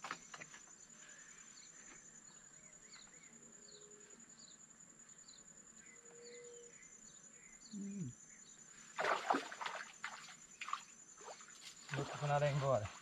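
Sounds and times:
bird chirps: 1.5 - 8.8.

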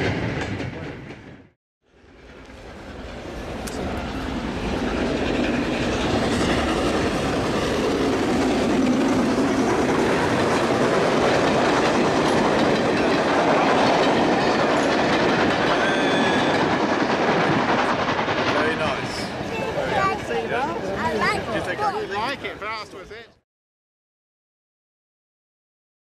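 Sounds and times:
train running past: 0.0 - 23.3
wheel clatter on rails: 4.7 - 19.2.

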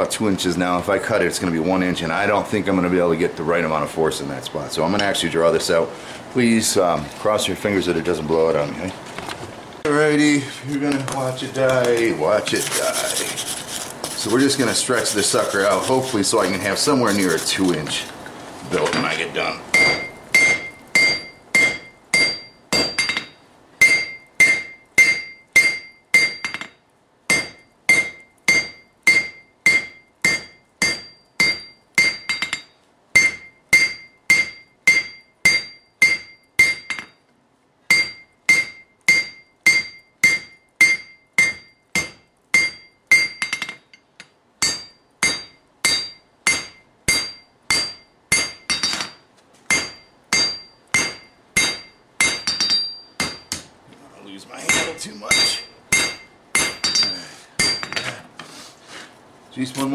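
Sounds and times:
hammer ringing on anvil: 18.9 - 26.7, 27.3 - 37.2, 37.9 - 44.0, 44.6 - 53.7, 54.7 - 58.2.

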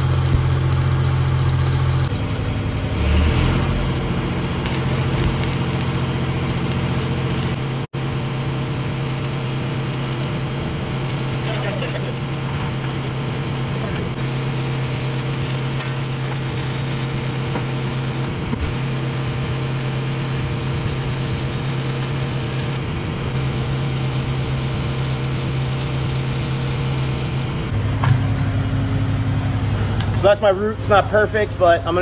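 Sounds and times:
welding arc crackling: 0.0 - 27.8
welder engine humming: 0.0 - 32.0.

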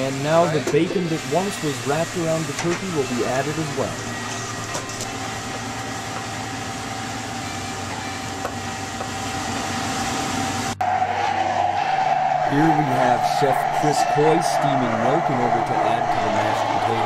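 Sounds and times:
steam wand hissing: 0.0 - 6.0
commercial kitchen hum: 0.0 - 17.0.

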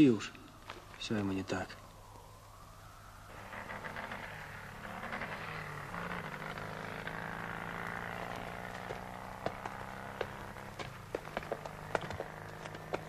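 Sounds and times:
vehicle engine running: 3.3 - 13.0.

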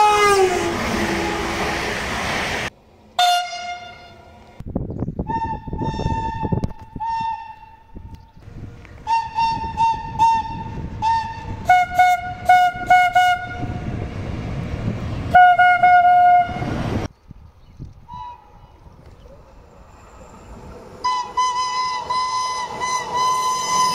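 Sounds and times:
locomotive horn toots: 0.0 - 1.9, 3.2 - 4.4, 5.2 - 8.2, 9.0 - 14.0, 15.3 - 17.0, 21.0 - 23.9
passing locomotive rumble: 0.0 - 23.9.

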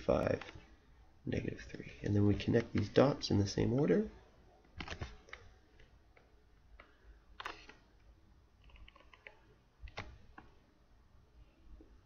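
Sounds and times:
faint clicks and taps: 1.7 - 3.0, 4.6 - 10.6.

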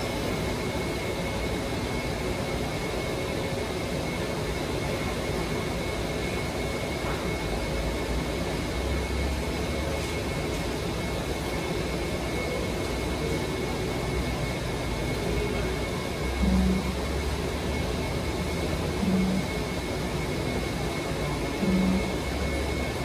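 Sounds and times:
faint high whine: 0.0 - 23.0.

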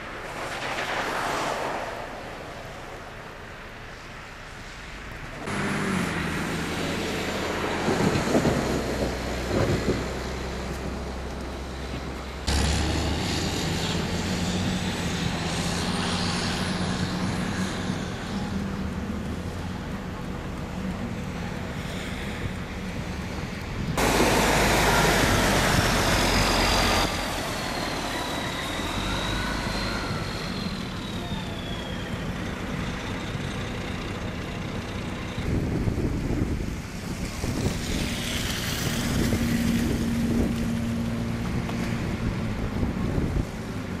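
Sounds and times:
road noise: 0.0 - 44.0
truck engines: 0.0 - 44.0
wavering whine: 24.4 - 33.9.

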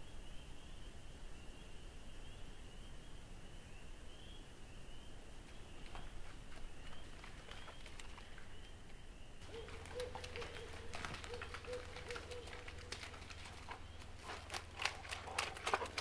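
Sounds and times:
faint steady hum: 0.0 - 16.0
dog running through dry leaves: 9.4 - 16.0.

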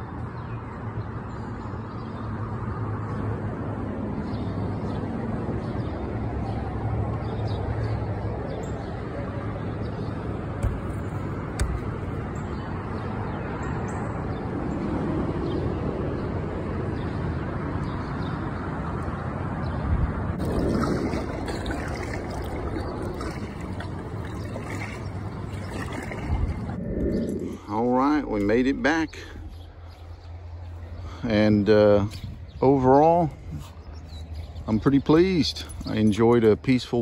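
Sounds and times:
light knocks on kayak: 10.6 - 11.9
river water rushing: 20.4 - 26.8.

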